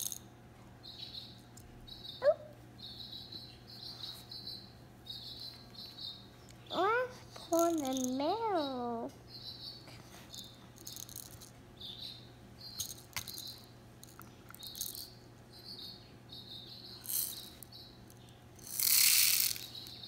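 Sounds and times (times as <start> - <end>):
sugar pearls rattling in plastic cup: 0.0 - 0.2, 7.6 - 8.2, 10.4 - 11.5, 12.8 - 15.1, 17.0 - 17.7, 18.6 - 20.0
sugar pearls pouring into bowl: 17.1 - 17.6, 18.6 - 19.8.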